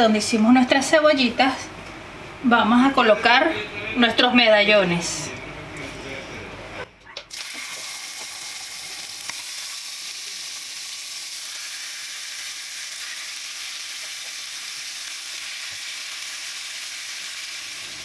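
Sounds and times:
meat sizzling in oil: 0:07.3 - 0:18.0.

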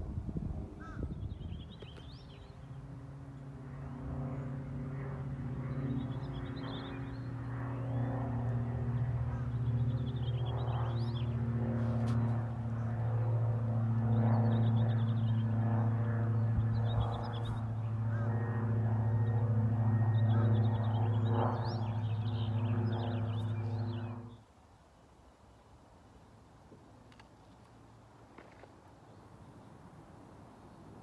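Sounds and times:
propeller aircraft droning: 0:00.0 - 0:24.7, 0:25.8 - 0:31.0
small birds chirping: 0:00.8 - 0:02.9, 0:05.6 - 0:13.4, 0:14.0 - 0:18.4, 0:19.1 - 0:24.4.

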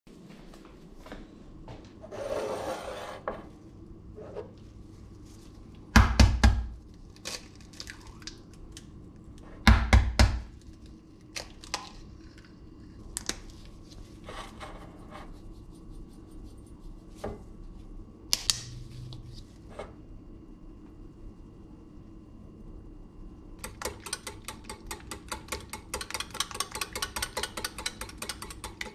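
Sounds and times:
eggs cracking: 0:07.1 - 0:09.0, 0:23.6 - 0:28.9.

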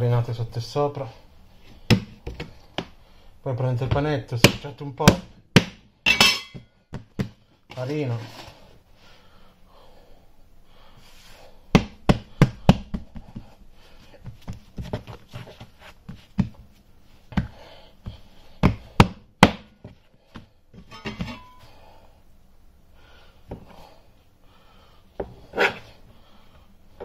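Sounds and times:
dough knocking on board: 0:03.9 - 0:05.9, 0:11.7 - 0:13.5, 0:18.6 - 0:20.5
faint rubbing of dough: 0:07.7 - 0:08.8, 0:10.8 - 0:11.6, 0:12.9 - 0:18.9.

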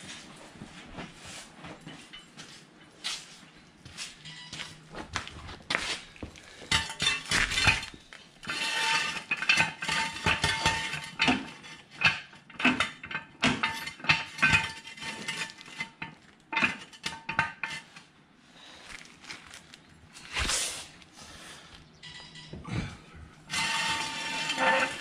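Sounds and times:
metal scraping: 0:06.7 - 0:12.0, 0:23.3 - 0:25.0
metal jack stand clanking: 0:23.5 - 0:25.0.

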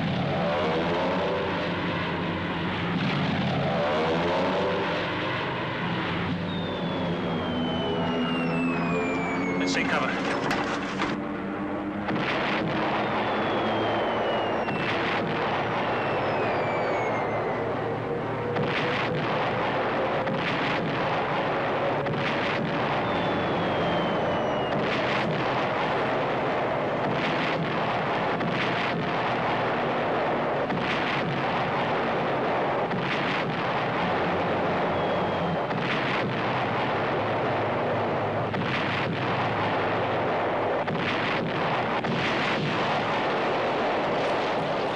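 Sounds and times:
falling whistles of incoming shells: 0:06.3 - 0:10.8, 0:12.7 - 0:17.8, 0:22.8 - 0:25.5, 0:34.4 - 0:35.9
shell explosions: 0:08.2 - 0:11.3, 0:12.0 - 0:44.9
artillery rumble: 0:09.6 - 0:11.2.

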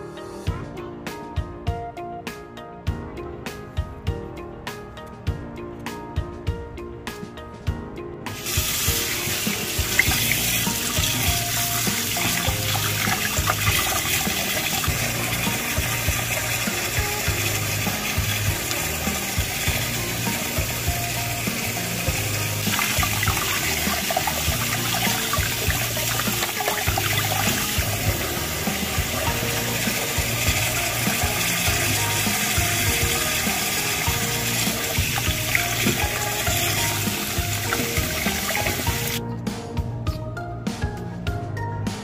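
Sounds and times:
background music: 0:00.0 - 0:42.0
tap water running into sink: 0:08.3 - 0:39.2.

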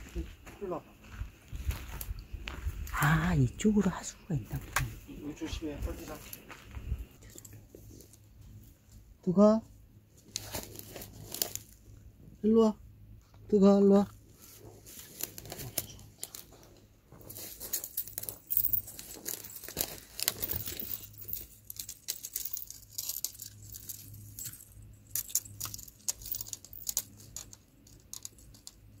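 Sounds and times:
rustling and crinkling: 0:04.5 - 0:09.1, 0:09.7 - 0:12.1, 0:13.2 - 0:29.0
light clicks and rattles: 0:14.8 - 0:29.0.

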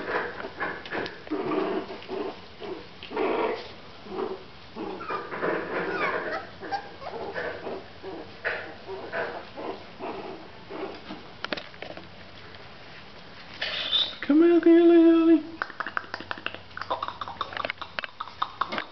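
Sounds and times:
puppies yipping and growling: 0:00.0 - 0:11.2.

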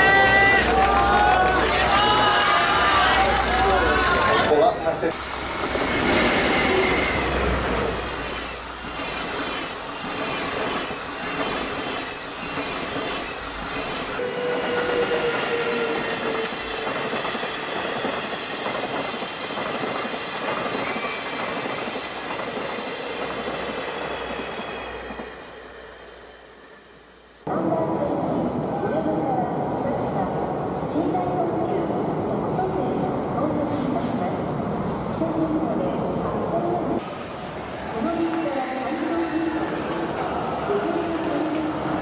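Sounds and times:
train wheels rumbling on rails: 0:00.4 - 0:26.8.

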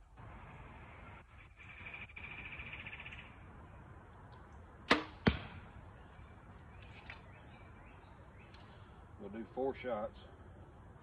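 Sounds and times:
sharp cracks: 0:04.8 - 0:05.8.

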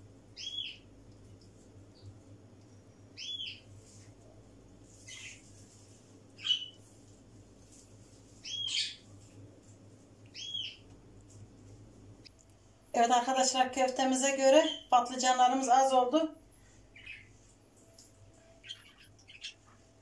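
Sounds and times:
bird chirping: 0:00.4 - 0:00.8, 0:02.8 - 0:03.7, 0:06.4 - 0:06.8, 0:08.4 - 0:09.0, 0:10.3 - 0:10.8, 0:16.9 - 0:17.4, 0:18.6 - 0:19.9.

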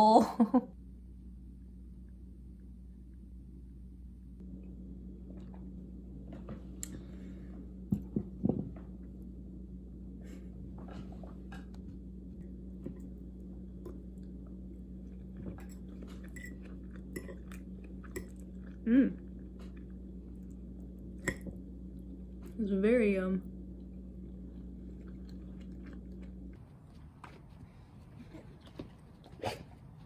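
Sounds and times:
low steady hum: 0:00.0 - 0:30.0
person chewing food: 0:12.4 - 0:22.6, 0:23.7 - 0:30.0.

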